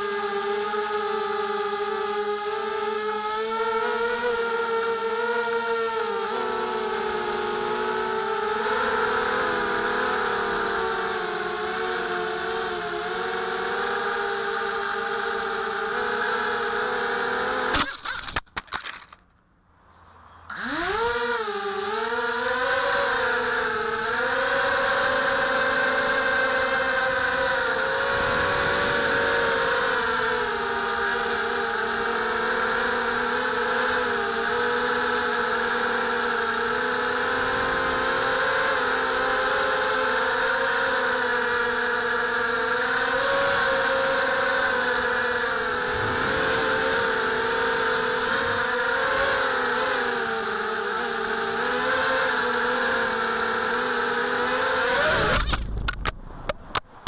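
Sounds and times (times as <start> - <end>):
quadcopter motors whining: 0.0 - 19.2, 20.1 - 56.2.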